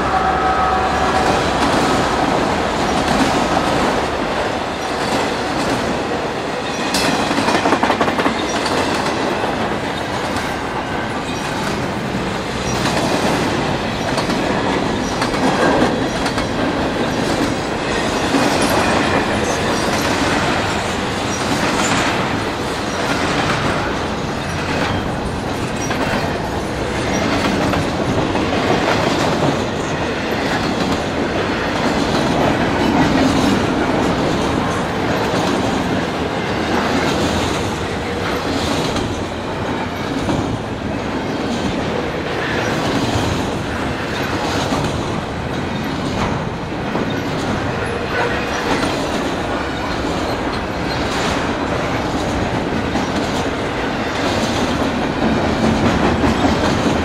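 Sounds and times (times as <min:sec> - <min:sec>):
freight train cars rumbling: 0:00.0 - 0:57.0
wheels clicking over rail joints: 0:01.4 - 0:57.0.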